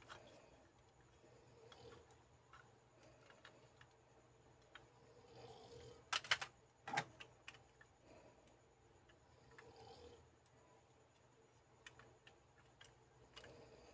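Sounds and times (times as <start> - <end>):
plastic toys clacking: 6.1 - 7.8
small clicks: 10.4 - 13.9.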